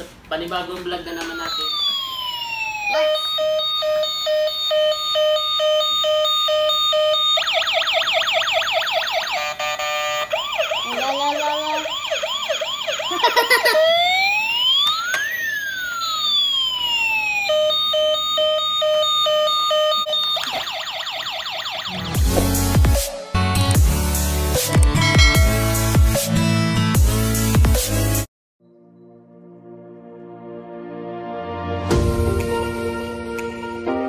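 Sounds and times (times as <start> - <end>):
toy electronic siren: 1.1 - 22.3.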